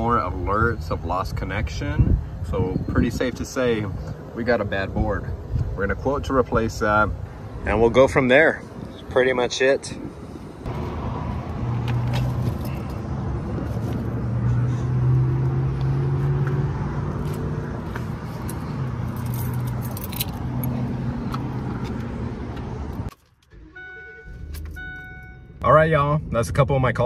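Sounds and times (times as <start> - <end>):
keys jangling: 18.4 - 20.8
truck warning chime: 23.6 - 25.6.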